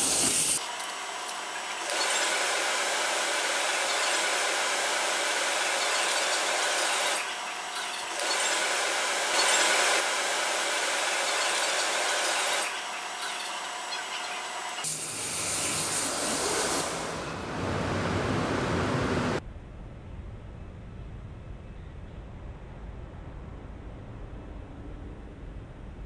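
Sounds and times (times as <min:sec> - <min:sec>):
waterjet cutting plastic: 0:00.0 - 0:17.3.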